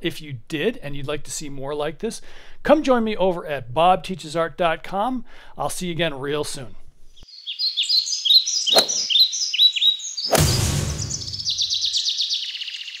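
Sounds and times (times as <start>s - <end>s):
birds chirping: 7.2s - 13.0s.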